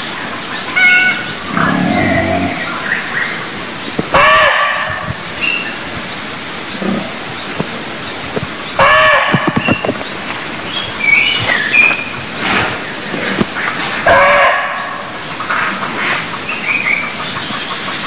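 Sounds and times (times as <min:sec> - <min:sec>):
bird calls: 0:00.0 - 0:18.0
deer barking: 0:08.8 - 0:09.4, 0:14.1 - 0:14.9.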